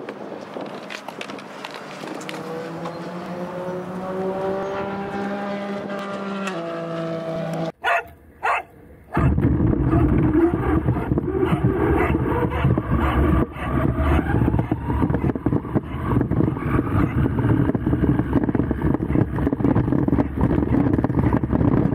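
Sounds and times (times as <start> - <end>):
rough rumble of car on grass: 1.6 - 7.8, 9.2 - 21.9
dog barking: 7.8 - 10.1, 11.0 - 14.3.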